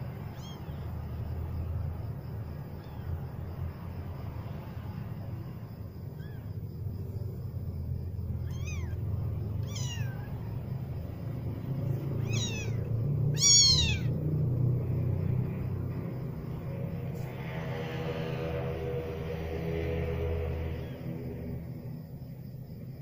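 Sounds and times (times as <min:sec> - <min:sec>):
kittens mewing: 0:00.0 - 0:01.0, 0:02.7 - 0:03.3, 0:06.0 - 0:06.7, 0:08.3 - 0:11.0, 0:11.9 - 0:14.4
steady low rumble: 0:00.0 - 0:17.8.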